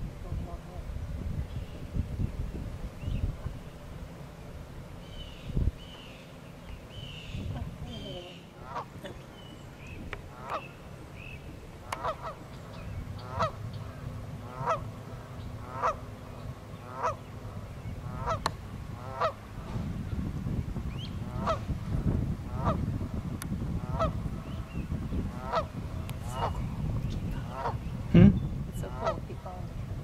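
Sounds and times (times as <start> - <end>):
goose honking: 8.6 - 9.0, 11.9 - 12.4, 13.2 - 14.9, 15.6 - 16.1, 16.9 - 17.3, 18.0 - 19.4, 21.3 - 21.6, 22.5 - 22.8, 23.8 - 24.2, 25.3 - 25.7, 26.3 - 26.6, 28.8 - 29.3.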